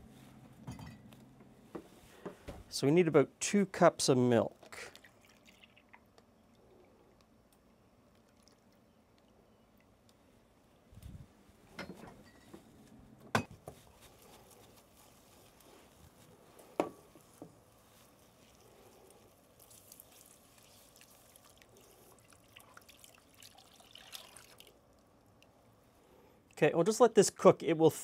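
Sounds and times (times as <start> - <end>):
liquid sloshing: 4.6 - 6.0, 19.6 - 24.8.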